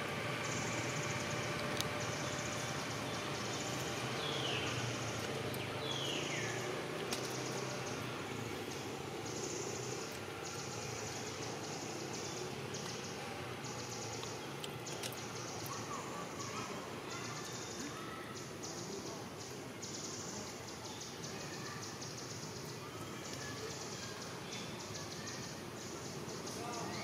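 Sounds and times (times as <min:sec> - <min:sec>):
insects buzzing: 0:00.0 - 0:27.0
sharp clicks: 0:14.2 - 0:15.3.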